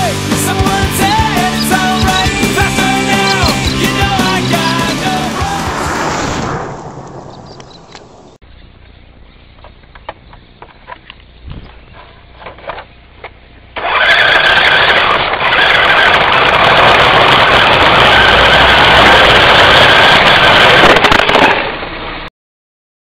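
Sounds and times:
tyres spinning and squealing: 0:00.4 - 0:08.4, 0:13.8 - 0:20.8
car engine at high revs: 0:13.7 - 0:22.2.

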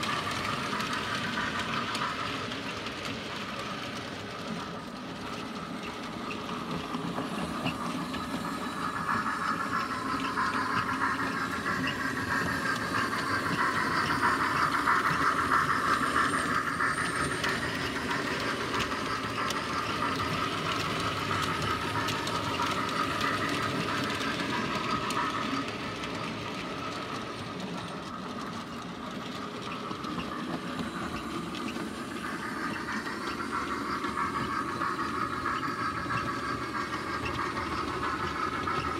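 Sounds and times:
model train rolling on track: 0:00.0 - 0:38.9.

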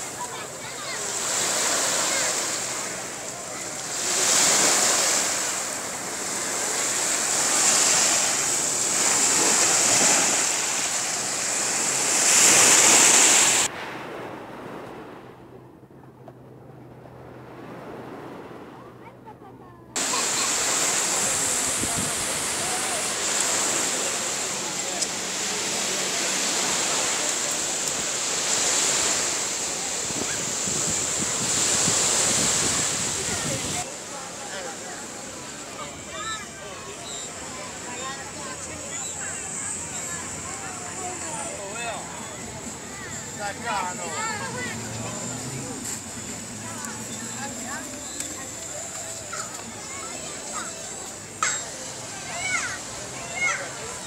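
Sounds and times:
sea waves washing on sand: 0:00.0 - 0:15.5, 0:17.1 - 0:18.9, 0:20.0 - 0:54.0
wind on microphone: 0:20.0 - 0:23.8, 0:28.0 - 0:33.8.

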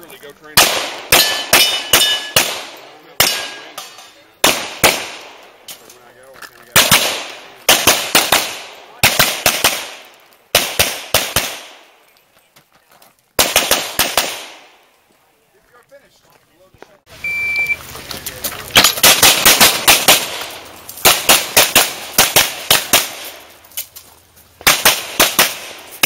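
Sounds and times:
handgun shots with echo: 0:00.6 - 0:05.4.

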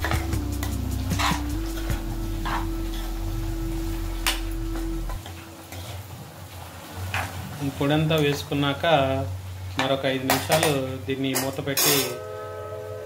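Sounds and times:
metal spoon scraping frying pan: 0:00.0 - 0:01.8, 0:11.3 - 0:12.3.

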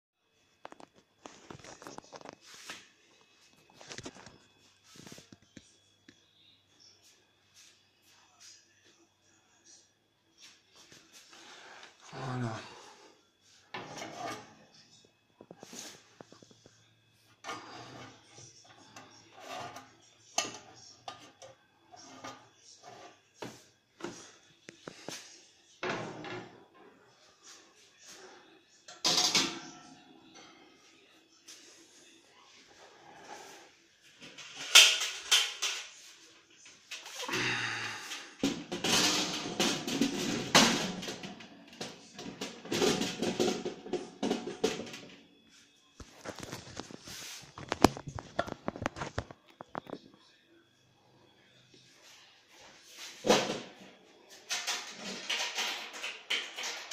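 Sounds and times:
metal parts knocking and scraping: 0:38.4 - 0:45.1.

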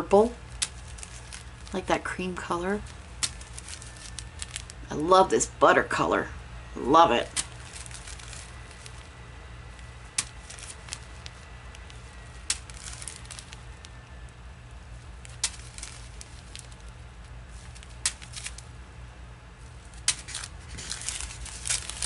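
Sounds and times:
plastic bags crinkling: 0:00.0 - 0:05.0, 0:07.2 - 0:18.8, 0:19.6 - 0:22.0
steady low hum: 0:00.0 - 0:22.0.

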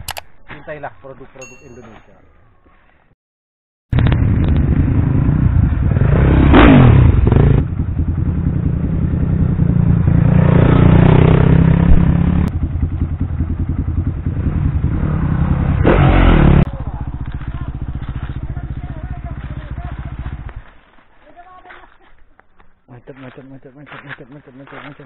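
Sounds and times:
motorcycle engines revving: 0:04.0 - 0:20.8.

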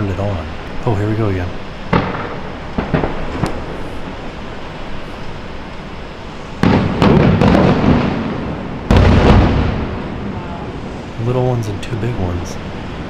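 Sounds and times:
firework booms and cracks: 0:01.9 - 0:04.2, 0:06.6 - 0:11.0.

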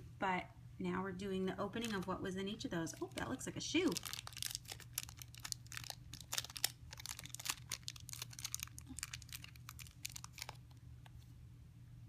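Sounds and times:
plastic packaging crinkling: 0:01.8 - 0:10.8.

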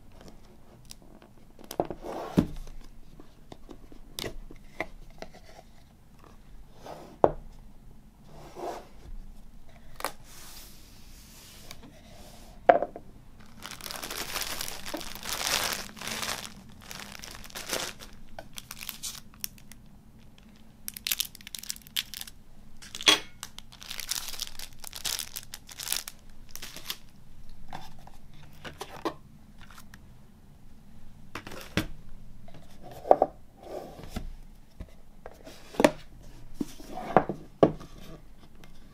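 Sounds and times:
plastic wrapping crinkling: 0:13.4 - 0:27.2.

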